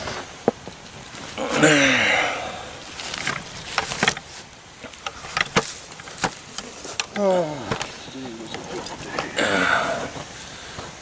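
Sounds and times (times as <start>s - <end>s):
man's breathy wordless vocal: 9.1s - 10.8s.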